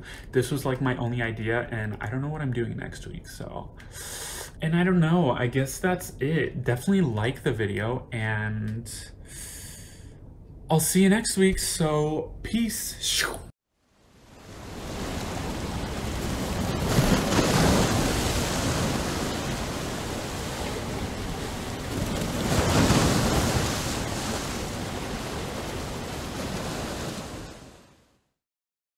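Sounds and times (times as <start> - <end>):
ocean waves breaking: 14.0 - 28.1.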